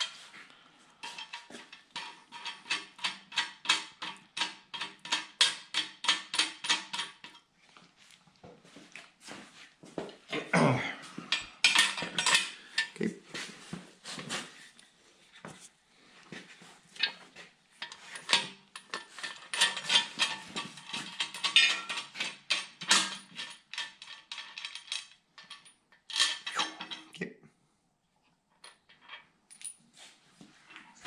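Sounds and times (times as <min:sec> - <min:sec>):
metal clinking and scraping: 0:00.0 - 0:07.5, 0:11.3 - 0:14.5, 0:17.0 - 0:27.2.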